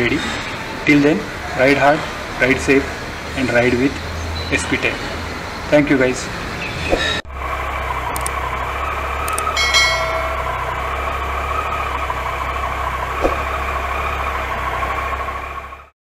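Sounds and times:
short bright chime: 0:09.6 - 0:11.0.

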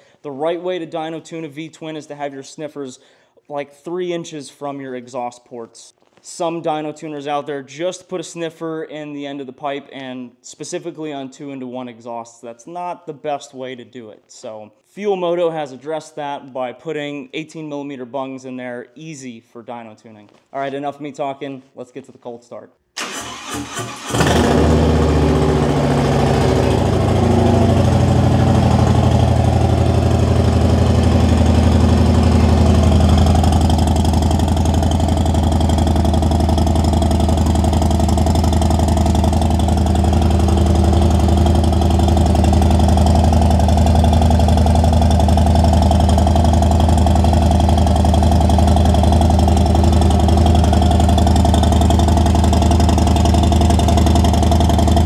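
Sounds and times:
motorcycle engine idling: 0:24.5 - 0:55.0.

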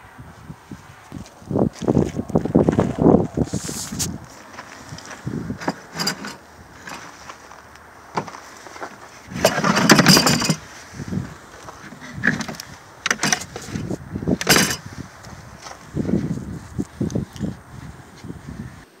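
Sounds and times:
metal scraping rattle: 0:04.9 - 0:15.0
scrap metal clanks and knocks: 0:05.0 - 0:10.8, 0:11.6 - 0:15.0.

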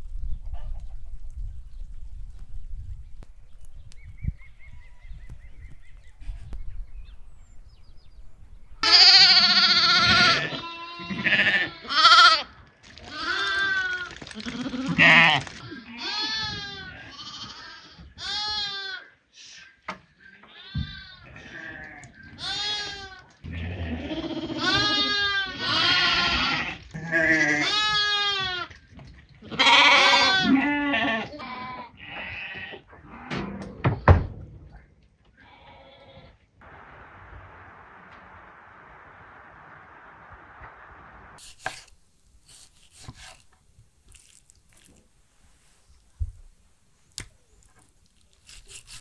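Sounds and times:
sheep and lambs bleating: 0:08.8 - 0:19.2, 0:20.3 - 0:28.8, 0:29.4 - 0:33.2, 0:35.3 - 0:36.4.

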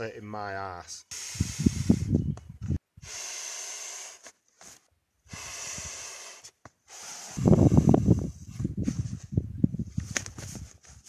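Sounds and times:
man blowing into mat valve: 0:01.0 - 0:02.3, 0:03.0 - 0:04.3, 0:05.2 - 0:08.3.

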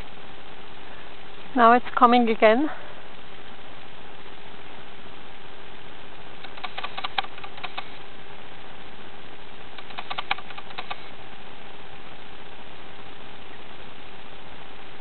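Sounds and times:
steady hiss: 0:00.0 - 0:15.0
meerkats clicking calls: 0:06.4 - 0:08.0, 0:09.8 - 0:11.1.

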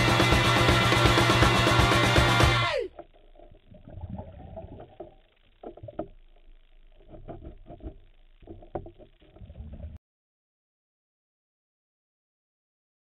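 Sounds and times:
background music: 0:00.0 - 0:02.9
muffled underwater rumbling: 0:02.9 - 0:10.0.

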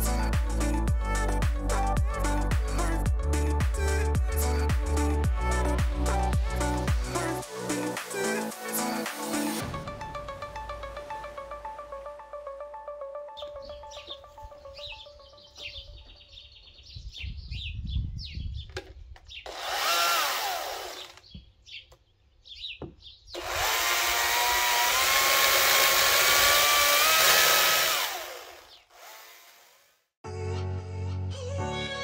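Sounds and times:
birds chirping: 0:13.1 - 0:19.7, 0:20.8 - 0:23.4, 0:28.5 - 0:28.9
chainsaw cutting wood: 0:19.5 - 0:21.2, 0:23.4 - 0:30.0.

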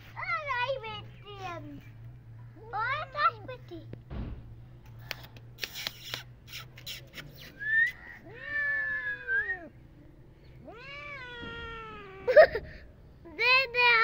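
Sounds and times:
cat meowing: 0:10.6 - 0:12.3.

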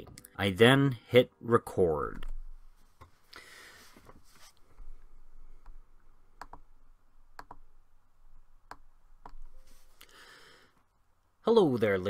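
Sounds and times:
computer mouse clicks: 0:06.4 - 0:06.6, 0:07.4 - 0:07.6.

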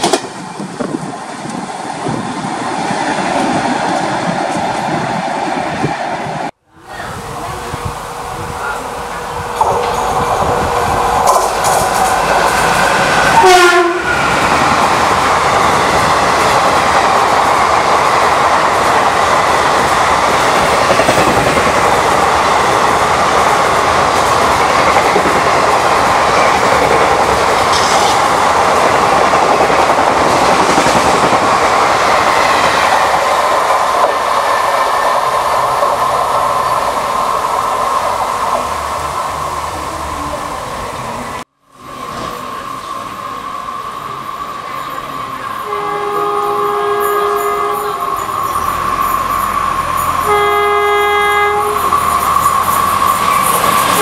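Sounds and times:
train wheels clacking over rail joints: 0:00.0 - 0:01.6, 0:09.5 - 0:13.3, 0:14.2 - 0:36.8, 0:46.2 - 0:54.0
train horn: 0:13.4 - 0:14.2, 0:45.6 - 0:48.6, 0:50.0 - 0:52.0.

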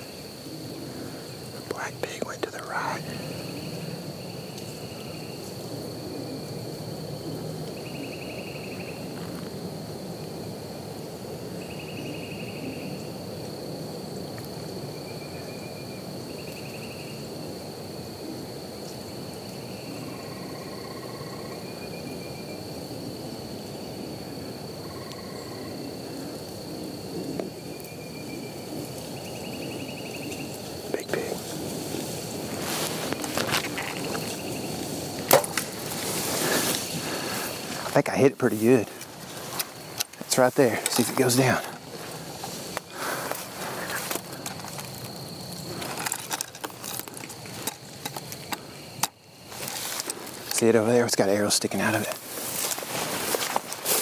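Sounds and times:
trilled bird calls: 0:07.7 - 0:09.2, 0:27.2 - 0:37.9.

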